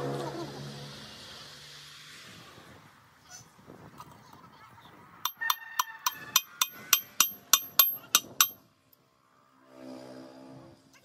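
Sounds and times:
hammer striking steel gears: 5.3 - 8.6.

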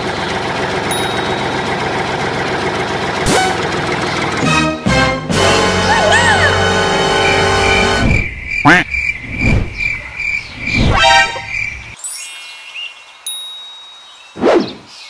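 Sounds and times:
music: 4.4 - 8.1
quick swooping whistles: 14.4 - 14.9.

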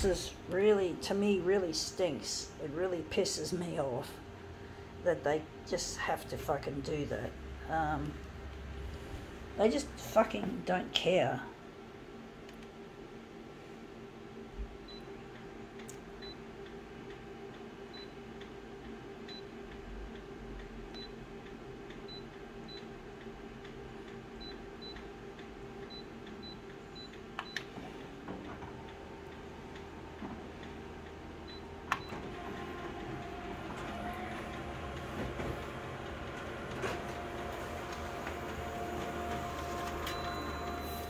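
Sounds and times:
copier humming: 0.0 - 41.0
copier running a job: 13.5 - 41.0.

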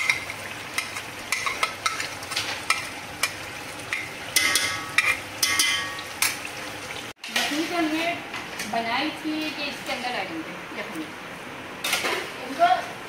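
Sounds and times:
food sizzling in a pot: 0.0 - 8.1.

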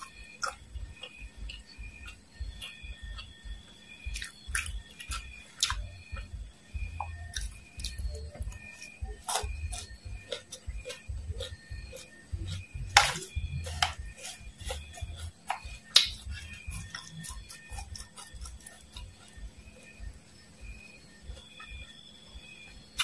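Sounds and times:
crunchy chewing: 0.0 - 23.0
dull jaw thumps: 4.1 - 14.1.

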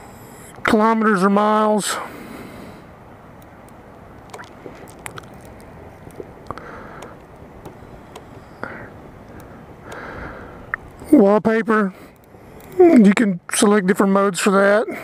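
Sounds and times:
faint irregular clicks: 3.3 - 11.2, 11.9 - 12.9.

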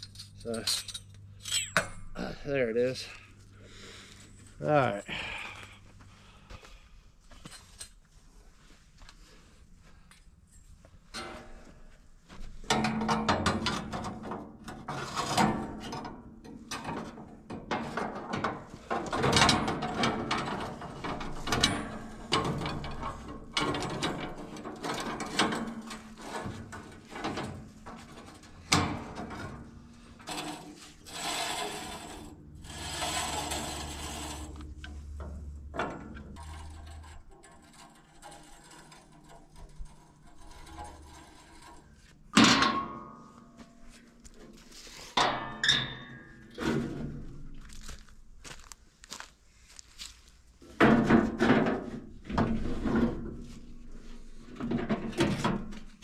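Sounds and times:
metal covers banging shut: 16.8 - 30.7, 42.3 - 43.2.

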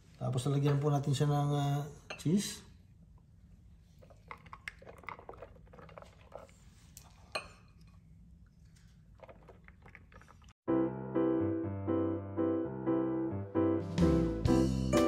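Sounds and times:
piano music: 10.7 - 15.0.

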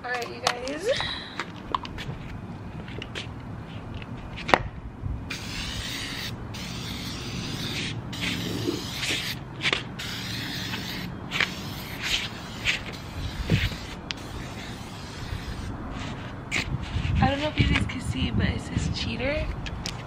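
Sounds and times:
aerosol spray can hissing: 5.3 - 9.4, 10.0 - 15.7.

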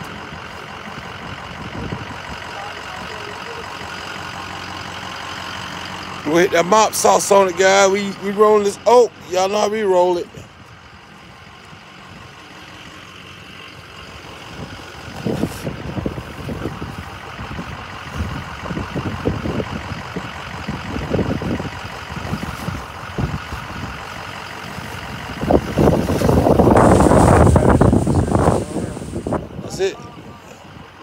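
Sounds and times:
wind buffeting microphone: 0.9 - 2.4, 14.4 - 31.0.

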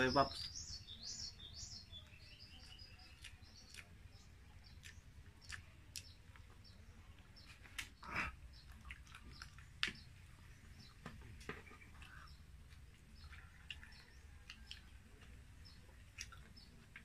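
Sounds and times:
faint bird chirps: 0.0 - 17.0.

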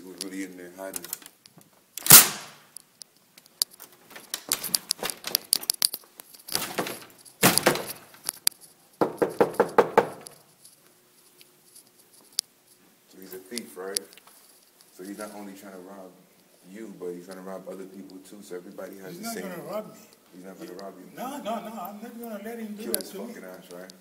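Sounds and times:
banging on wooden door: 6.6 - 8.0, 9.0 - 10.3
door knocks and rattles: 6.6 - 8.1, 9.0 - 10.4.

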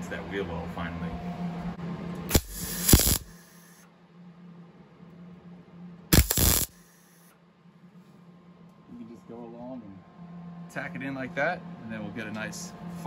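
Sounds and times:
steady low hum: 0.0 - 13.0
welding arc crackling: 2.3 - 3.8, 6.1 - 7.2.

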